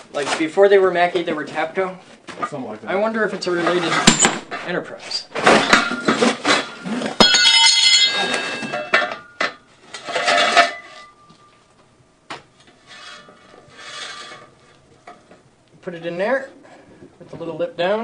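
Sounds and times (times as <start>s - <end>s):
metal scraping: 2.5s - 11.6s, 12.6s - 15.4s
metallic ringing: 4.0s - 11.6s
metal jack clanking and rattling: 5.3s - 11.1s.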